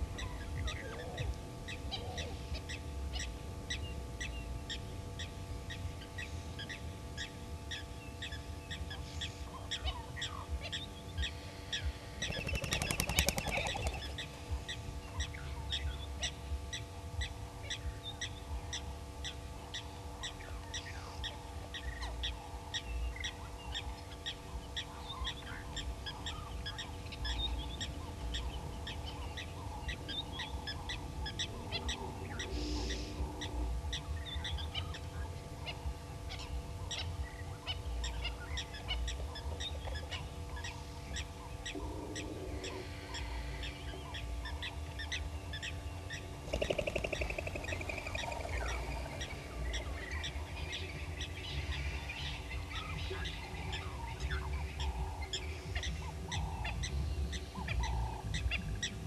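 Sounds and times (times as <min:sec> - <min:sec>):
loud rattling call: 0:12.2 - 0:14.2, 0:46.4 - 0:49.9.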